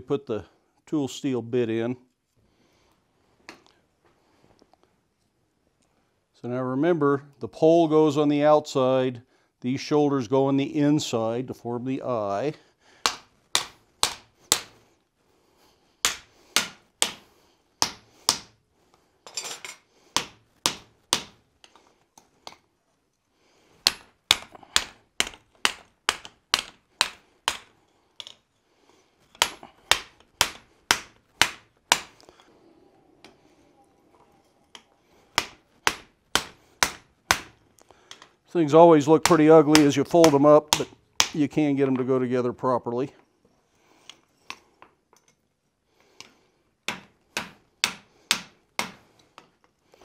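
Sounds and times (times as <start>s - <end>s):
hammer striking hot steel on anvil: 13.1s - 14.7s, 16.0s - 17.2s, 17.8s - 18.5s, 20.2s - 21.4s, 23.9s - 27.7s, 35.4s - 37.6s, 46.9s - 49.0s.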